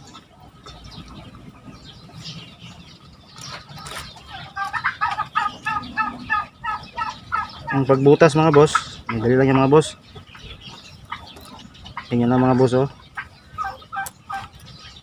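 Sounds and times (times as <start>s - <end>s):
fowl clucking: 3.5s - 14.6s.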